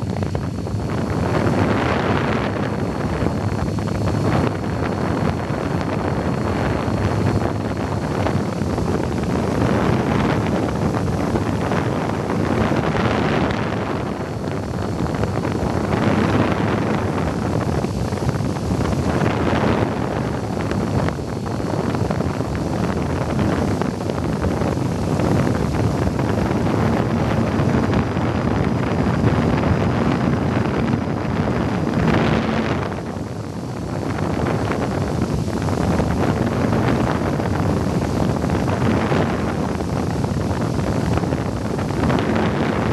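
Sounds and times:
model plane motor whine: 0.0s - 42.9s
wind rushing over microphone: 0.0s - 42.9s.

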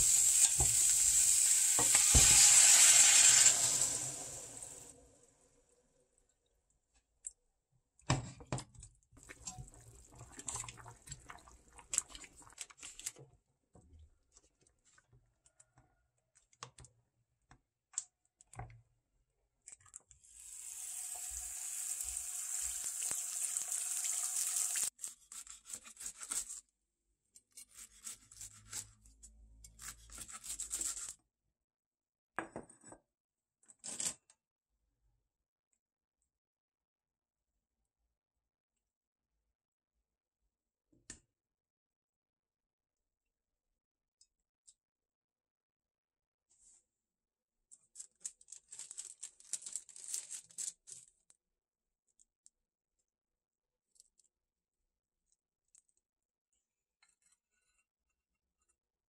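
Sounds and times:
egg frying sizzle: 0.0s - 4.9s, 20.3s - 25.0s
wooden spoon stirring in saucepan: 9.2s - 12.7s.

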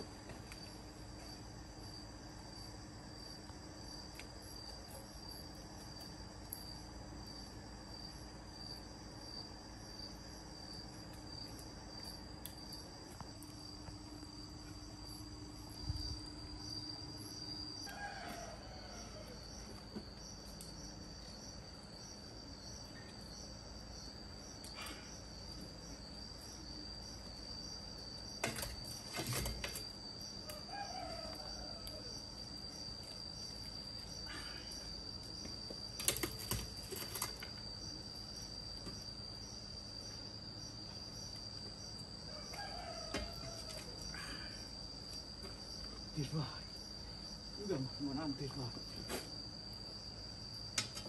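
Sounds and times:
insects trilling: 0.0s - 51.0s
rooster crowing: 17.8s - 19.8s, 30.4s - 32.3s, 42.3s - 44.6s.

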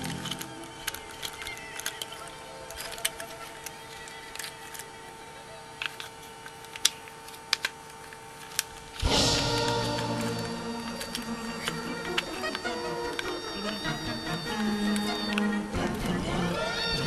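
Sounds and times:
plastic toy clicks and snaps: 0.0s - 5.2s, 5.8s - 17.0s
background music: 9.0s - 17.0s.

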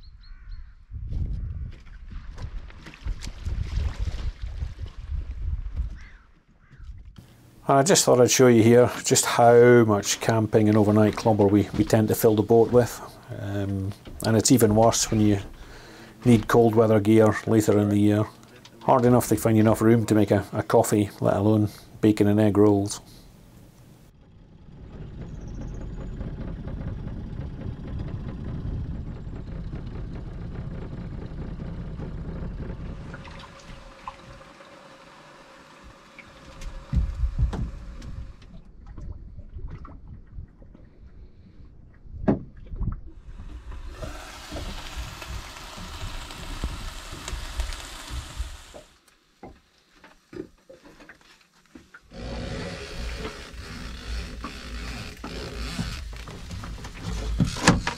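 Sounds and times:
wind noise: 0.0s - 7.2s, 36.5s - 48.7s
water around a boat: 1.1s - 57.9s.

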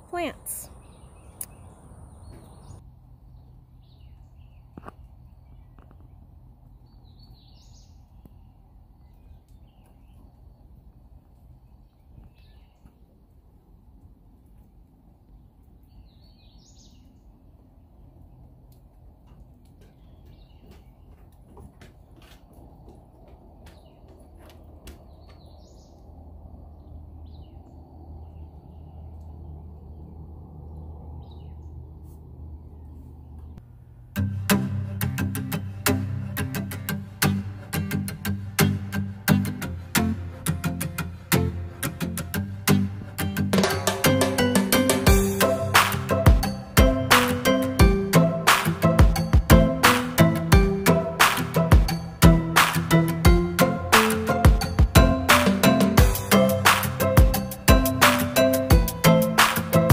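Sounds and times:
songbirds chirping: 0.0s - 34.0s, 35.6s - 59.9s
low outdoor rumble: 0.0s - 59.9s
low rumble: 22.6s - 33.7s.

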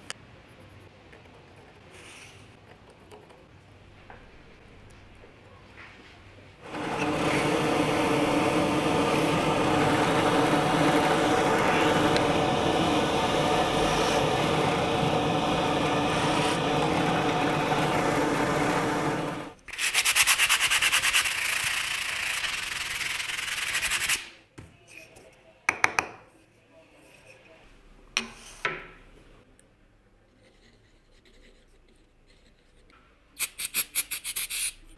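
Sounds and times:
drill press motor running: 6.6s - 19.6s
sander pulsing: 6.6s - 19.6s.

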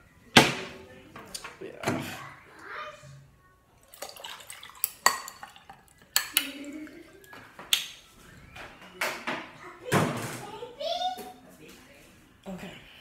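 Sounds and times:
dishes and cutlery clinking: 3.8s - 8.0s.

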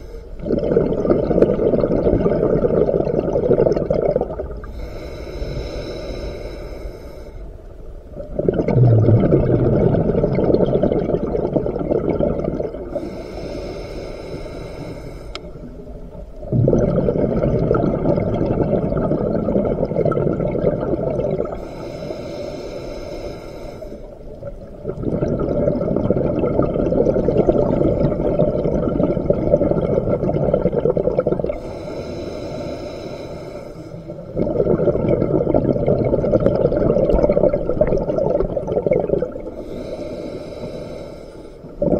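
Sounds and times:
bubbling underwater exhalations: 0.4s - 4.7s, 8.2s - 13.2s, 16.5s - 21.8s, 24.4s - 32.0s, 34.2s - 39.9s
hissing regulator inhalations: 4.6s - 7.6s, 12.9s - 15.8s, 21.5s - 24.2s, 31.5s - 34.4s, 39.5s - 41.8s.

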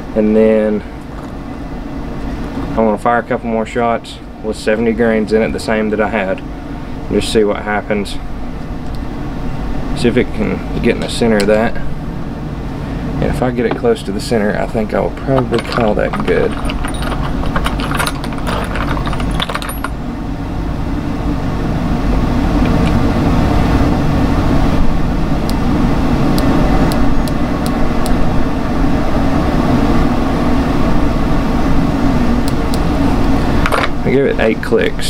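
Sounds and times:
loud steady low hum: 0.0s - 35.0s
handling rattles: 15.2s - 20.0s.

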